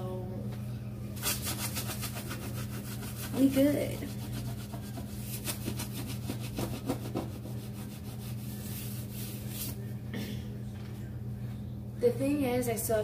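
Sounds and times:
steady low hum: 0:00.0 - 0:13.0
rubbing and scraping: 0:01.2 - 0:09.8.

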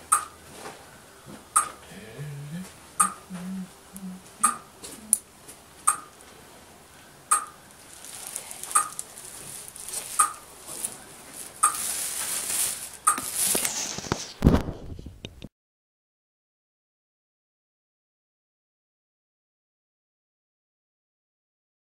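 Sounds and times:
sharp mechanical click: 0:05.9 - 0:06.1
rustling handling noise: 0:07.6 - 0:15.2.

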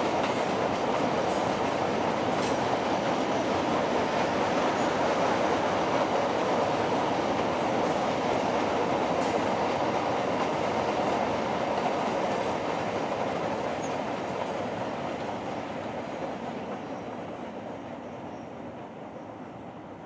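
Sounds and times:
train wagons rumbling on track: 0:00.0 - 0:20.0.

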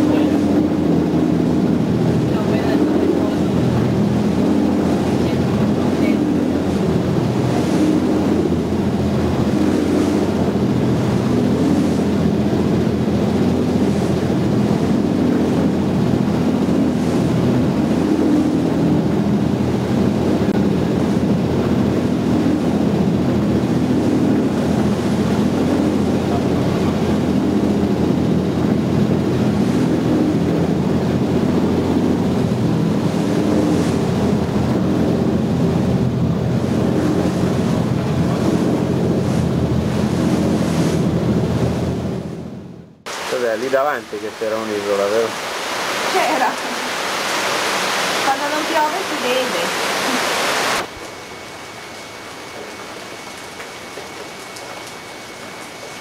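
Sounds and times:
wind buffeting microphone: 0:00.0 - 0:42.8
boat engine running: 0:00.0 - 0:56.0
choppy sea: 0:00.0 - 0:56.0.

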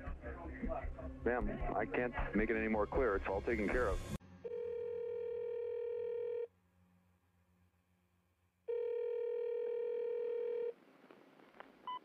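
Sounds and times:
telephone ringback tone: 0:04.4 - 0:06.5, 0:08.7 - 0:10.7.

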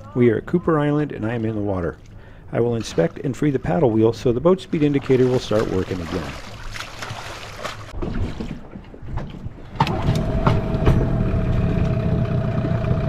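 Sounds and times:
outboard motor running: 0:09.8 - 0:13.0.

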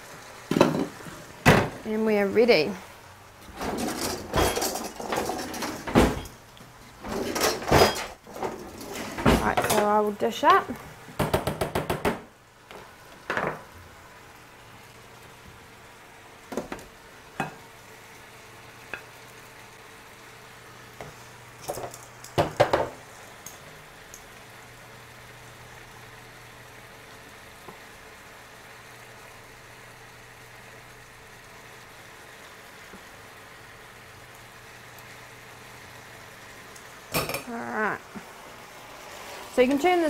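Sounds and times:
meat sizzling in a frying pan: 0:00.0 - 0:40.0
utensils clinking on pans: 0:03.4 - 0:06.4, 0:07.0 - 0:10.0, 0:21.6 - 0:23.6, 0:37.1 - 0:37.5.

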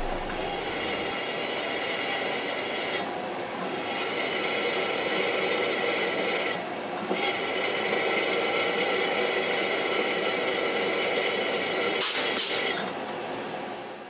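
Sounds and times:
spindle whine: 0:00.0 - 0:03.0.

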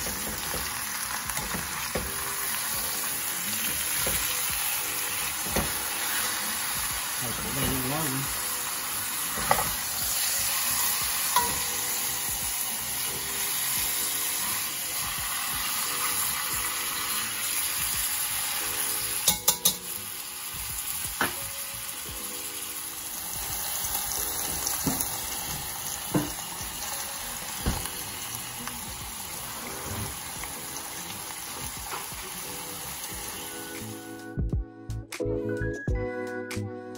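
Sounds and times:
meat sizzling in oil: 0:00.0 - 0:34.2
metal tongs clacking on pot: 0:11.3 - 0:11.8, 0:19.2 - 0:19.9.

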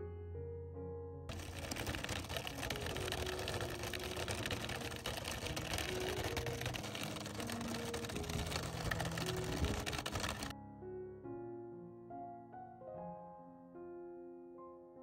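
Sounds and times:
wooden cart rattling over ground: 0:01.3 - 0:10.5.

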